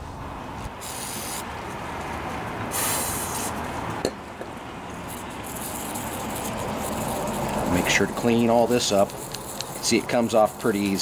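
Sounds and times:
aerosol spray hissing: 0.8 - 1.4, 2.7 - 3.6
toothbrush scrubbing metal: 5.5 - 11.0.

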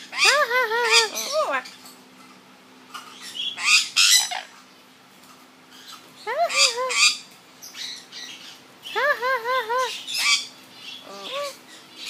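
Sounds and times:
parrot wavering call: 0.0 - 1.7, 3.2 - 4.6, 5.8 - 11.8
parrot squawking: 0.0 - 4.7, 5.7 - 12.0.

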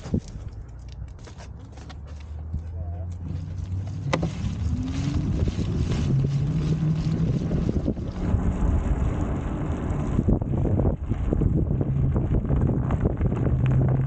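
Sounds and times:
road noise on wet pavement: 0.0 - 14.0
wind buffeting microphone: 3.5 - 14.0.

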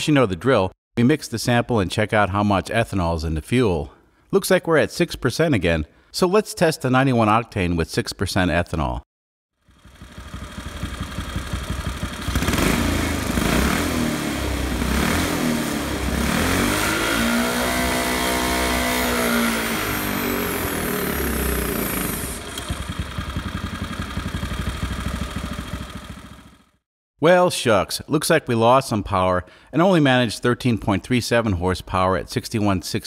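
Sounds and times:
small engine running under load: 9.6 - 26.8.

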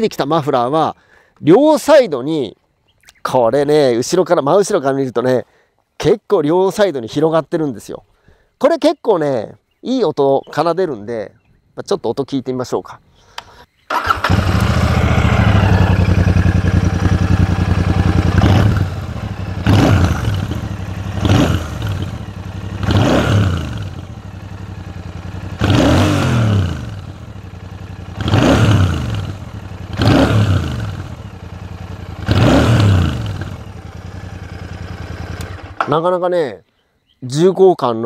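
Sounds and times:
motorcycle engine revving: 13.9 - 35.9.

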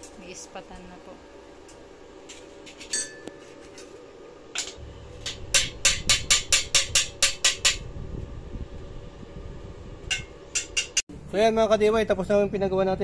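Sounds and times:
hammer tapping on metal: 4.6 - 7.8, 10.1 - 11.1.

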